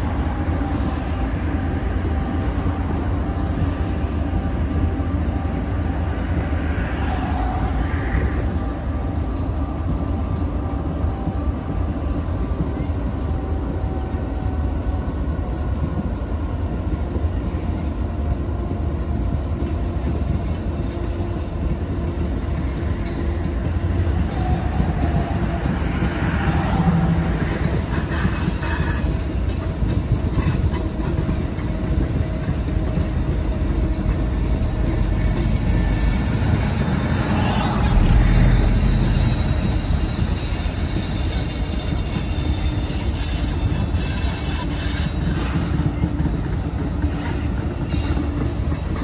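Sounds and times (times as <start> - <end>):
train wheels rumbling on track: 0.0 - 49.0
wheel squeal: 34.6 - 45.8.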